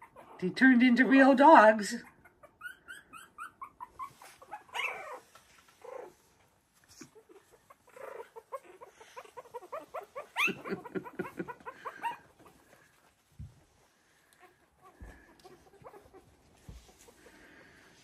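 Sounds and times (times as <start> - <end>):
puppies squealing: 0.0 - 0.4, 2.0 - 6.1, 7.1 - 12.6
puppies whimpering and squeaking: 0.0 - 1.3, 1.9 - 13.0, 14.4 - 17.6.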